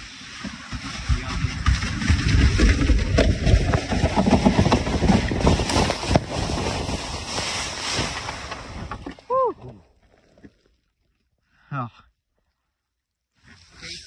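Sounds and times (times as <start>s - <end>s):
kayak scraping over snow: 0.0s - 9.3s, 13.4s - 14.0s.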